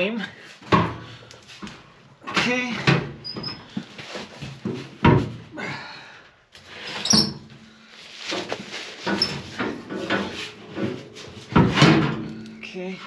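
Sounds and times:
metal fuel tank knocks and bumps: 0:11.5 - 0:12.4.

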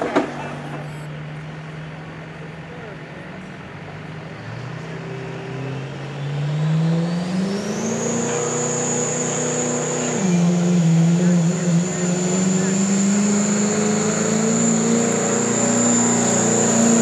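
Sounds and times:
diesel truck engine revving: 0:00.0 - 0:17.0
high turbo whine: 0:00.0 - 0:17.0.

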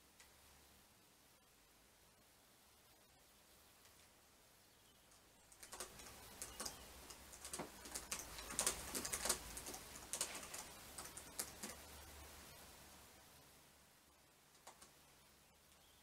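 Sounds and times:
typing on laptop keyboard: 0:05.5 - 0:11.9, 0:14.5 - 0:14.9.

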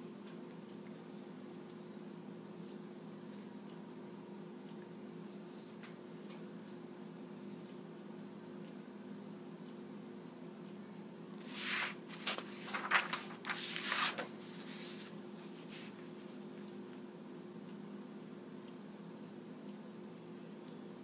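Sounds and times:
steady low hum: 0:00.0 - 0:21.0
paper rustling on a tabletop: 0:11.4 - 0:17.0.

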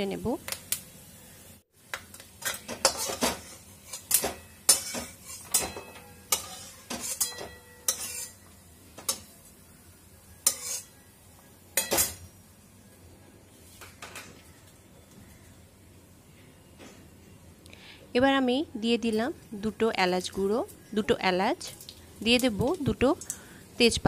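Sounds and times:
spatula clanking against metal pan: 0:02.4 - 0:08.4.

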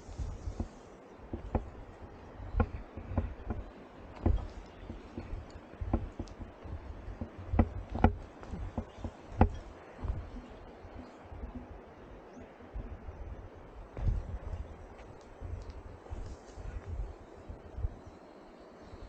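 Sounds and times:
low thuds: 0:00.0 - 0:18.0
knocks and taps: 0:01.3 - 0:01.8, 0:02.5 - 0:11.1.

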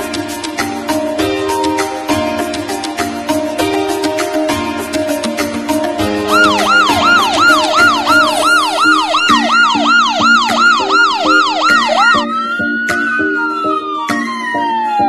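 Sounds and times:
background music with steady beat: 0:00.0 - 0:15.0
ambulance siren: 0:06.3 - 0:15.0.

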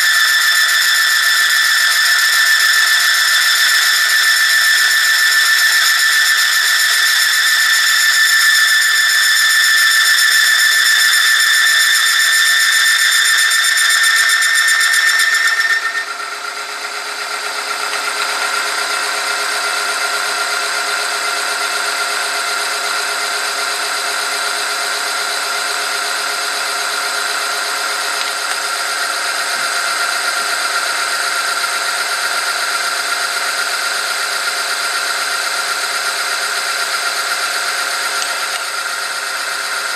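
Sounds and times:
machine friction squeal: 0:00.0 - 0:39.9.

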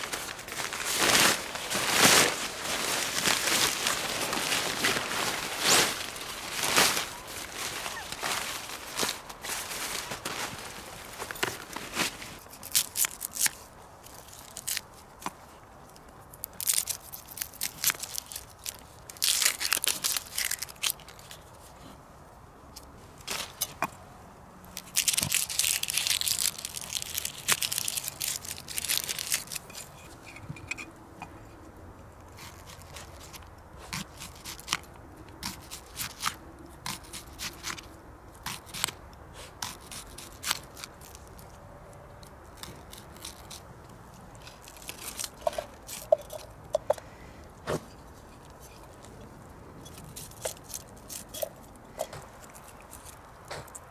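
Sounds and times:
wrapping crinkling and tearing: 0:00.0 - 0:15.0, 0:16.3 - 0:21.6, 0:24.8 - 0:30.0, 0:39.7 - 0:41.6, 0:42.5 - 0:46.5, 0:52.4 - 0:53.9.

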